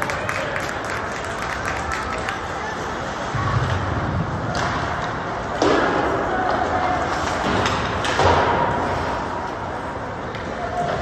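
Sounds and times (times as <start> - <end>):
hockey stick hitting puck: 4.5 - 8.9.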